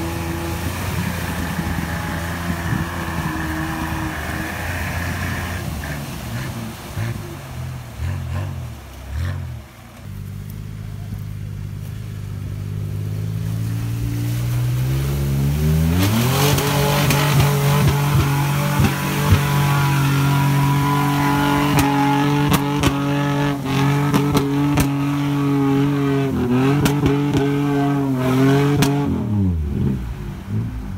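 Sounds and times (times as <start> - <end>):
car engine revving: 0.0 - 30.9
tyres spinning through mud: 0.0 - 30.9.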